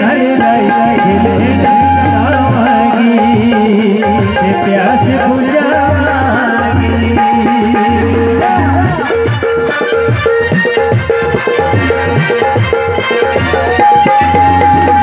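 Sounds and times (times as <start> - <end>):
man singing into a microphone: 0.0 - 10.2
hand drum beat: 0.0 - 15.0
harmonium: 0.0 - 15.0.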